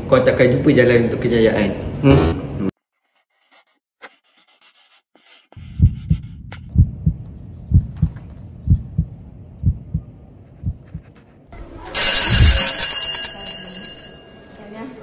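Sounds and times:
pencil scratching on paper: 3.0s - 6.4s
heartbeat thumps: 5.6s - 11.2s, 12.3s - 12.7s.

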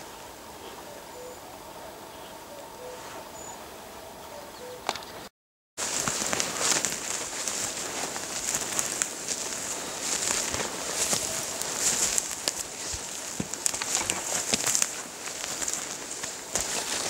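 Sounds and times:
clothing and backpack rustle: 5.8s - 17.0s
footsteps crunching through dry grass: 5.8s - 17.0s.

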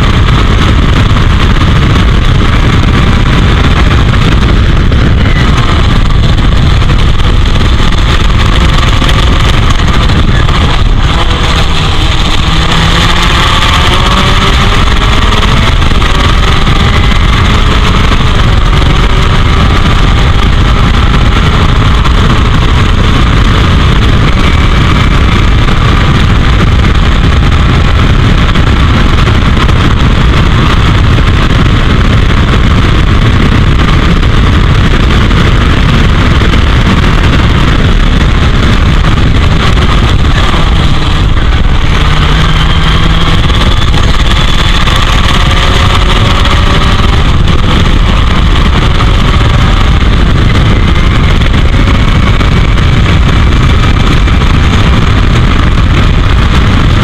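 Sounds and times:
faint racing car engine: 0.0s - 57.0s
wind buffeting on camera: 0.0s - 57.0s.

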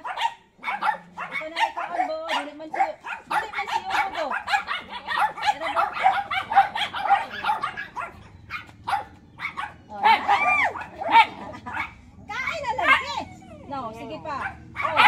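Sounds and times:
dog yipping and barking: 0.0s - 15.0s
dog whining: 12.5s - 15.0s.

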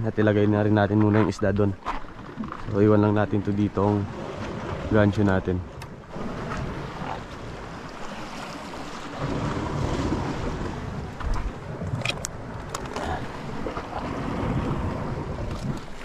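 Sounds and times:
water sloshing around boat: 0.0s - 16.0s
wind buffeting microphone: 4.0s - 16.0s.

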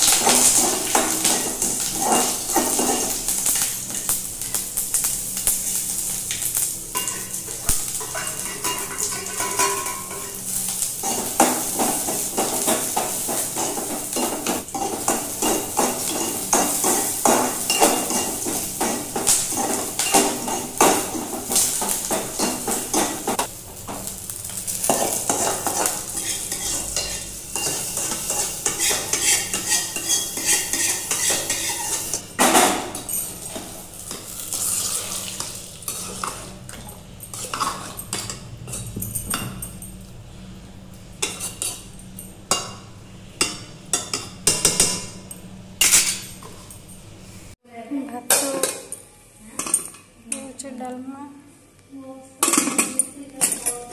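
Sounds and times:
metal spoon scraping a pan: 0.0s - 3.6s, 7.0s - 23.5s, 24.8s - 32.2s, 33.4s - 36.6s, 37.3s - 38.9s, 41.2s - 42.8s, 45.8s - 46.7s
chillies sizzling in hot oil: 0.0s - 38.8s
spoon clinking in steel pot: 8.0s - 10.4s, 24.9s - 32.2s.

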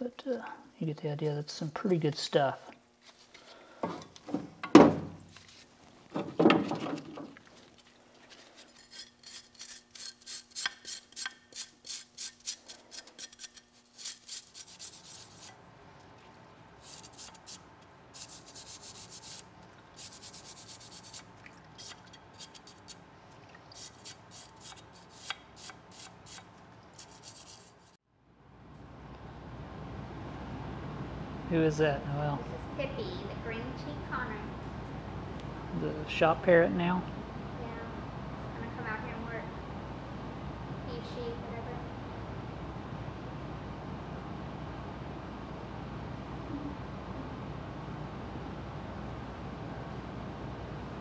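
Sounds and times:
faint pump hum: 0.0s - 51.0s
metal parts scrubbed in solvent: 8.3s - 15.5s, 20.0s - 23.0s, 23.7s - 25.3s.

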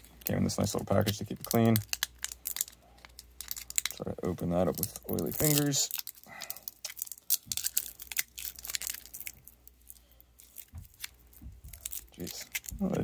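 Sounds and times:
package wrapper tearing and crinkling: 0.0s - 13.0s.

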